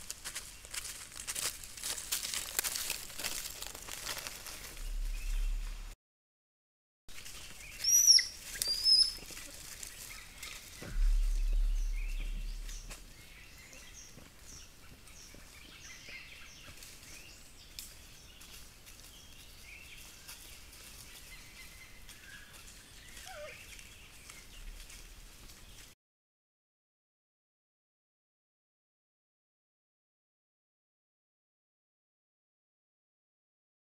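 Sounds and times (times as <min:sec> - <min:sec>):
low rumble: 0:04.3 - 0:06.0, 0:10.7 - 0:13.6
lower falling bird call: 0:04.7 - 0:05.9, 0:07.4 - 0:13.6
high bird chirps: 0:07.6 - 0:09.2, 0:10.8 - 0:13.9
short repeated high bird calls: 0:07.7 - 0:09.4
faint chirping: 0:10.3 - 0:13.9.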